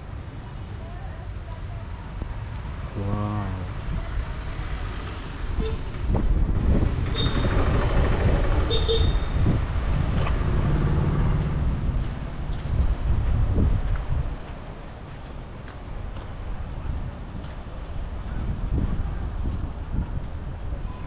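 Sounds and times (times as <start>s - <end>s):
vehicle engines running: 0.0s - 21.0s
low rumble: 6.0s - 15.0s.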